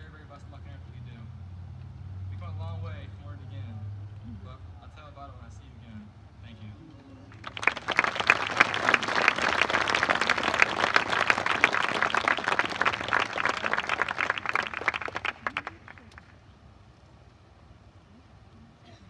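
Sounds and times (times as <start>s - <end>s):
crowd applauding: 7.3s - 16.4s.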